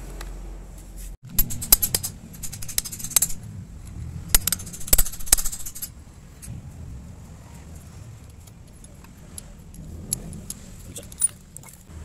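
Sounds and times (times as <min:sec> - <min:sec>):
metal parts clinking: 0:01.3 - 0:06.5.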